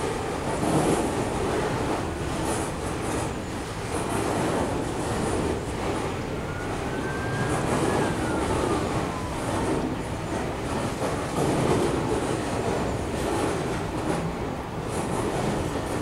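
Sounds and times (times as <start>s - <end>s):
train wheels rumbling on rails: 0.0s - 16.0s
faint wheel squeal: 6.0s - 10.2s.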